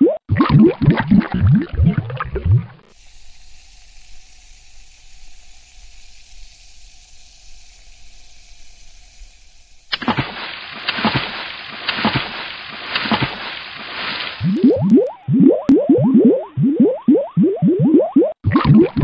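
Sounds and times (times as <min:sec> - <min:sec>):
bubbling and gurgling water: 0:00.0 - 0:03.0, 0:14.4 - 0:19.0
faint fizzing hiss: 0:02.9 - 0:15.1.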